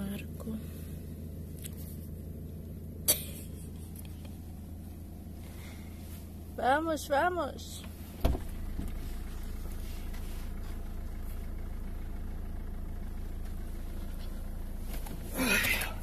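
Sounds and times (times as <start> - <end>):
car engine idling: 0.0 - 16.0
thump: 8.2 - 9.0.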